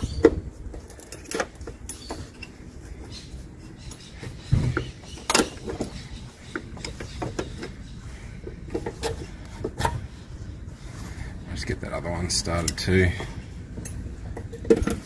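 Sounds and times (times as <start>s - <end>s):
tool handling knocks and clicks: 0.0s - 2.6s, 3.9s - 7.8s, 8.4s - 10.1s, 12.6s - 15.0s.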